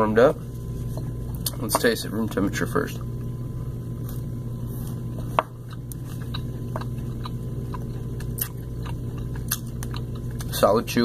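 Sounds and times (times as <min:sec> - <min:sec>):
low hum: 0:00.0 - 0:11.0
chewing protein bar: 0:05.6 - 0:10.6.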